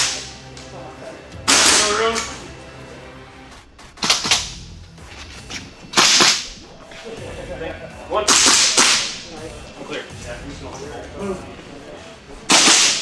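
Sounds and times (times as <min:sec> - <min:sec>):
airsoft rifle shots: 0:01.5 - 0:02.3, 0:04.0 - 0:04.6, 0:05.9 - 0:06.5, 0:08.3 - 0:09.2, 0:12.5 - 0:13.0.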